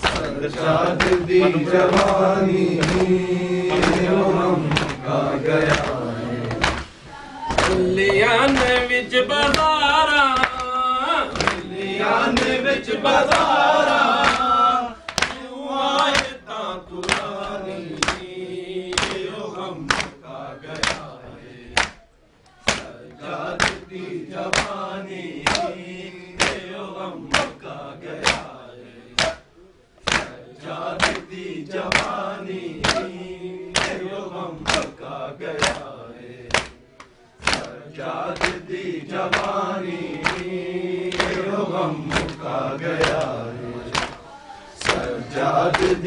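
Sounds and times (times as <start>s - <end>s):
hands slapping chests: 0.0s - 5.0s, 5.6s - 6.9s, 7.5s - 9.7s, 10.4s - 10.7s, 11.3s - 11.7s, 14.2s - 14.5s, 15.1s - 15.4s, 17.0s - 18.3s, 18.9s - 19.3s, 19.9s - 21.1s, 21.8s - 22.0s, 22.7s - 23.9s, 24.5s - 24.8s, 25.4s - 25.7s, 26.4s - 26.6s, 27.3s - 27.6s, 28.2s - 28.5s, 29.2s - 29.4s, 30.0s - 30.4s, 31.0s - 31.3s, 31.9s - 32.2s, 32.8s - 35.0s, 35.6s - 35.9s, 36.5s - 38.7s, 39.3s - 40.5s, 41.1s - 44.2s, 44.8s - 46.0s
men chanting in unison: 0.0s - 46.0s.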